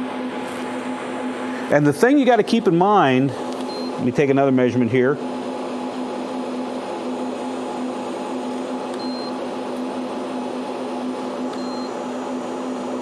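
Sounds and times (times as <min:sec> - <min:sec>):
steady electrical hum: 0:00.0 - 0:13.0
thermometer short high beeps: 0:11.6 - 0:11.9.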